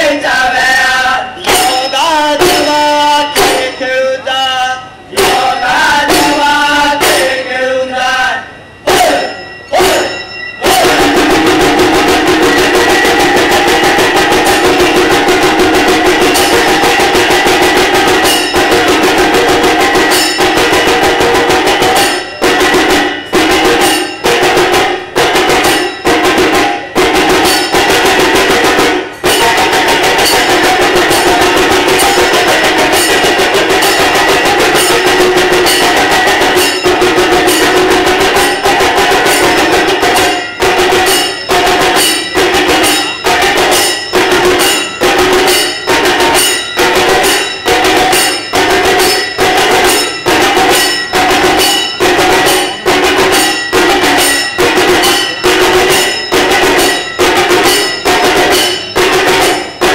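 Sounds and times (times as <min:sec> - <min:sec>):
rapid drum and percussion rhythm: 0:00.0 - 0:59.9
held tones: 0:01.3 - 0:28.4.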